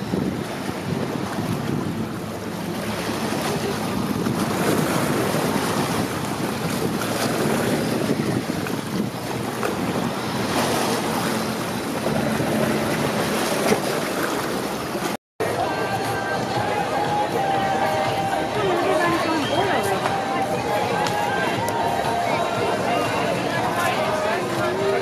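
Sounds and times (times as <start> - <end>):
wind buffeting microphone: 0.0 - 15.2
waves washing: 0.0 - 25.0.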